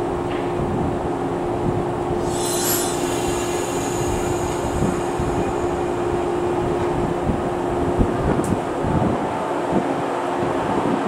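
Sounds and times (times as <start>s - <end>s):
electric train hum: 1.9s - 9.7s
air hiss: 2.2s - 7.8s.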